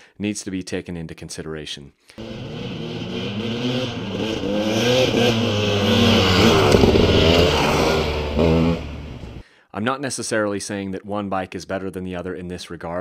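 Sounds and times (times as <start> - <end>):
dirt bike engine revving: 2.2 - 9.4.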